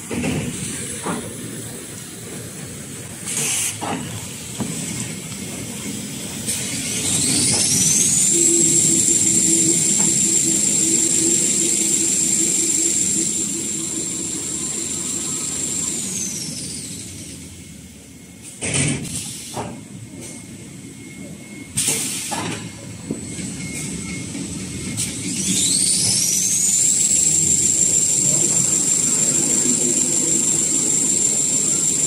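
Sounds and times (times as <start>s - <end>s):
machinery whining and humming: 0.0s - 18.8s, 22.5s - 32.0s.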